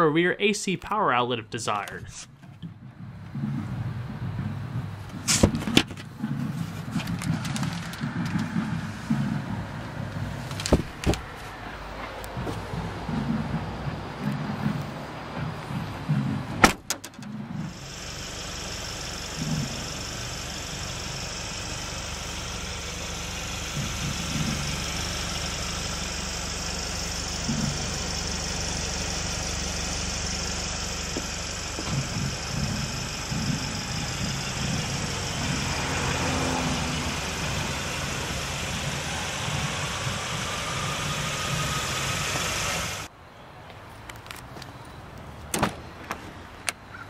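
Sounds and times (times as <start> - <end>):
vehicle engine idling: 2.1 - 43.1
soft low bumps: 2.3 - 17.7, 27.3 - 39.7
constant hiss: 16.7 - 43.1.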